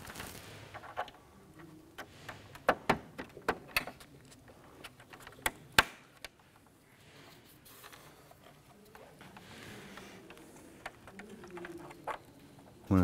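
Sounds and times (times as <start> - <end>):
handling of plastic parts: 0.0 - 13.0.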